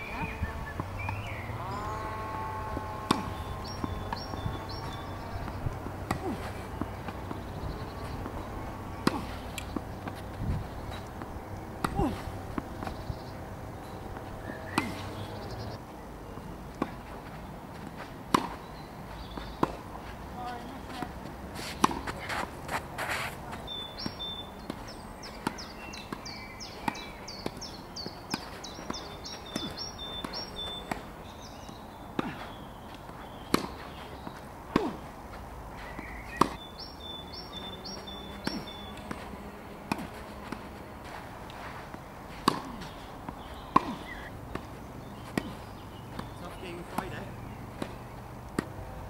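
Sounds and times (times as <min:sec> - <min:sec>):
tennis balls struck by rackets: 0:00.1 - 0:01.4, 0:02.6 - 0:15.8, 0:16.4 - 0:49.0
ball bounces: 0:02.8 - 0:07.6, 0:38.3 - 0:40.7, 0:42.4 - 0:48.8
footsteps: 0:16.8 - 0:23.7, 0:38.3 - 0:47.1.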